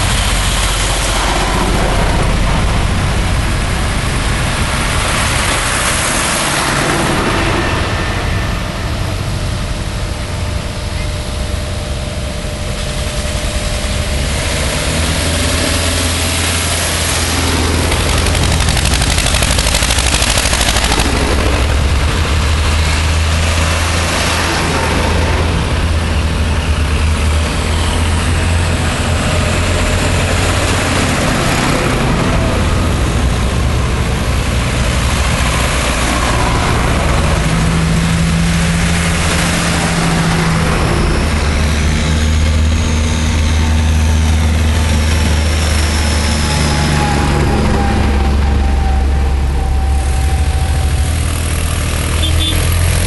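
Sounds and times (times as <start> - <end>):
diesel engines running loudly: 0.0 - 53.0
tractors driving past: 0.0 - 53.0.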